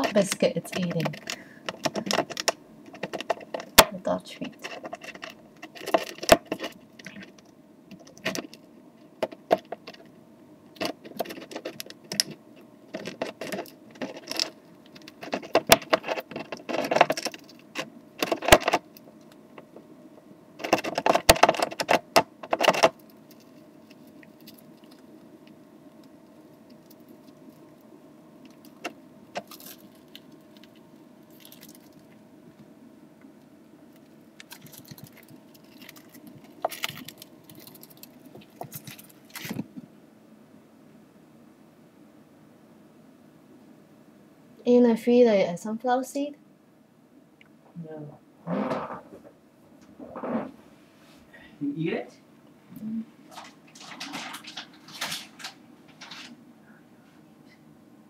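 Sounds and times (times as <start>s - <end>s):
hamster gnawing a biscuit: 0.0s - 19.9s, 20.6s - 32.7s, 33.3s - 39.9s.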